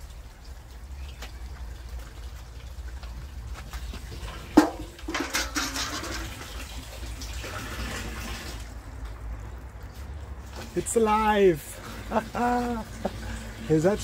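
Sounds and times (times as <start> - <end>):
water running through gutter: 0.0 - 14.0
water splashing on plastic lid: 3.7 - 8.7.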